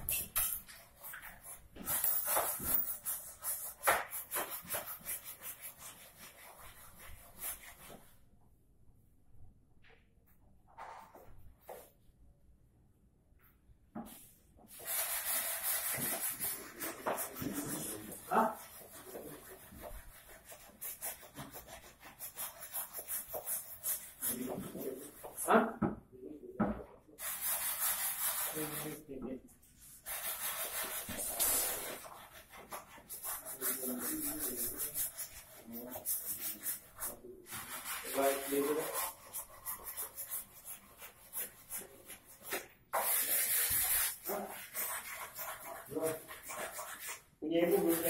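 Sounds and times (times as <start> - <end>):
sanding wood by hand: 14.7 - 25.5, 27.2 - 29.0, 30.0 - 48.0.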